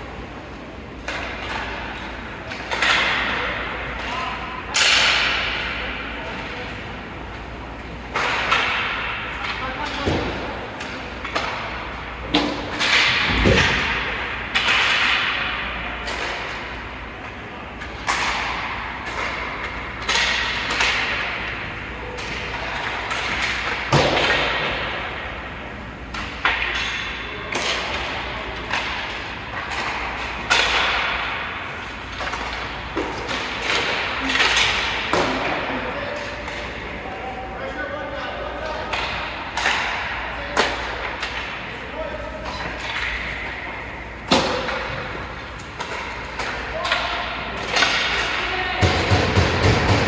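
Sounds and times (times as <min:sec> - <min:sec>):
sticks and puck knocking boards: 0:01.0 - 0:05.8, 0:08.1 - 0:16.7, 0:17.8 - 0:21.6, 0:22.2 - 0:25.3, 0:26.1 - 0:36.7, 0:44.3 - 0:50.0.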